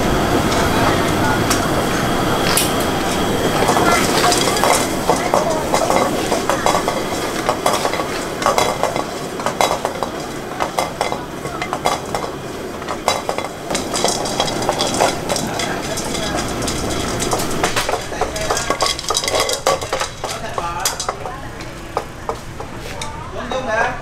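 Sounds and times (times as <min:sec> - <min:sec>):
sauce bubbling and sizzling in wok: 0:03.2 - 0:22.8
shells clicking against metal pan: 0:03.8 - 0:21.4.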